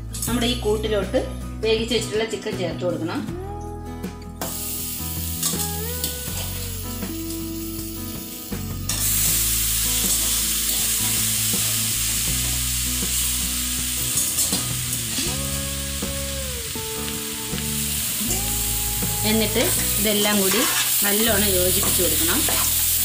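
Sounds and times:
masala sizzling in hot oil: 4.4s - 23.0s
spoon scraping a pan: 19.6s - 21.0s, 21.8s - 22.8s.

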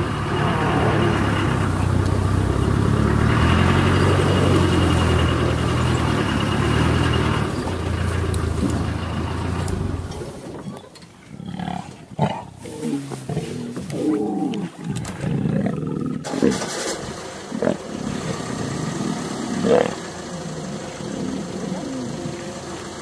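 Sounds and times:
vehicle engine idling: 0.0s - 11.3s, 16.2s - 23.0s
lions growling: 0.0s - 23.0s.

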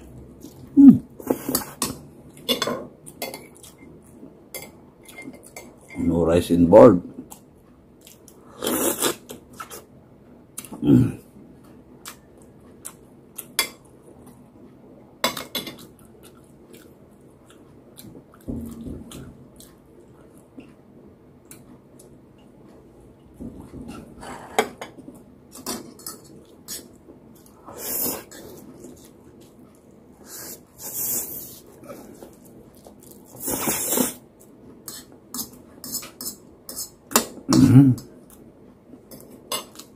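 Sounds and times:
chewing: 15.7s - 20.8s.

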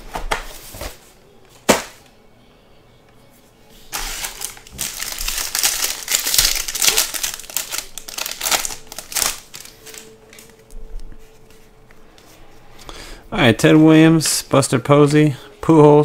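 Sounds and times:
foil wrapper crinkling: 3.9s - 10.7s
cards handled: 3.9s - 12.4s.

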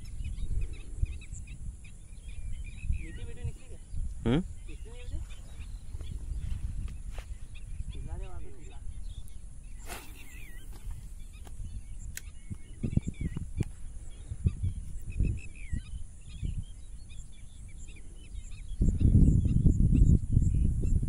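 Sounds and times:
birds chirping: 0.0s - 21.0s
fishing rod swishing: 9.7s - 11.1s.

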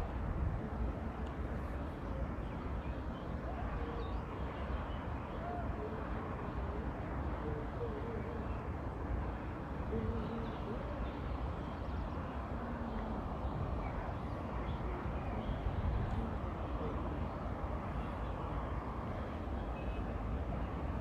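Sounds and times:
low rumble and hiss: 0.0s - 21.0s.

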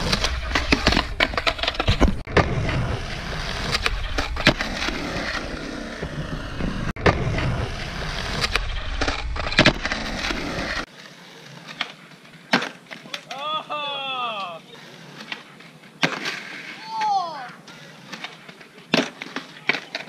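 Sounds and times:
skateboard wheels rolling on concrete: 0.0s - 20.0s
skateboard clacking on concrete: 14.4s - 20.0s.

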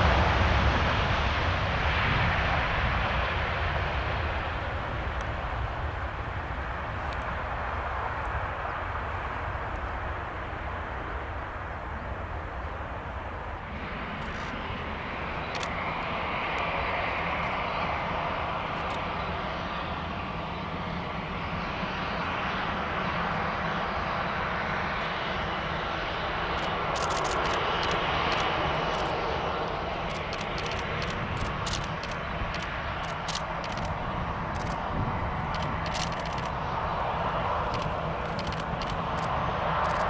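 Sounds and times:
jet engines whining: 0.0s - 40.0s
sharp clicks: 15.5s - 15.8s, 26.5s - 29.2s, 30.0s - 34.8s, 35.4s - 36.6s, 37.7s - 40.0s.

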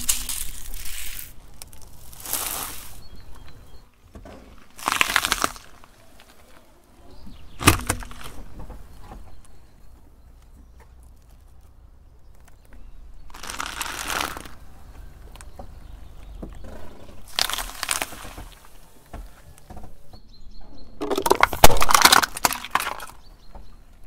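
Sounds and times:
tyre crushing brittle objects: 0.0s - 3.5s, 4.2s - 6.7s, 7.4s - 8.7s, 12.3s - 14.7s, 16.6s - 19.3s, 21.0s - 23.5s.

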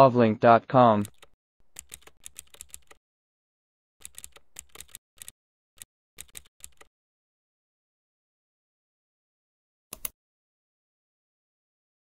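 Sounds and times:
keyboard keystrokes: 1.0s - 3.0s, 4.0s - 5.3s, 6.2s - 6.9s, 9.9s - 10.1s.

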